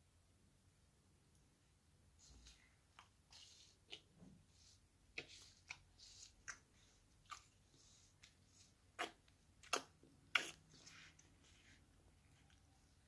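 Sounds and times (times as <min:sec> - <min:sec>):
soft slurping: 0:03.3 - 0:12.7
toddler chewing wet mouth smacks: 0:06.4 - 0:07.6, 0:08.2 - 0:10.8.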